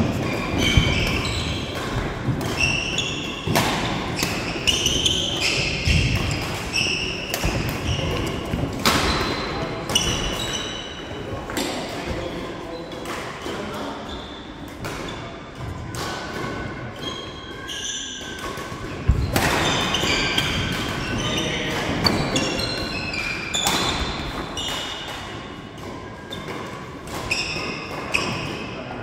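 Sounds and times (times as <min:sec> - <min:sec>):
racket hitting shuttlecock: 0:00.0 - 0:10.6, 0:14.7 - 0:16.7, 0:18.2 - 0:28.7
shoes squeaking on wooden floor: 0:00.0 - 0:10.8.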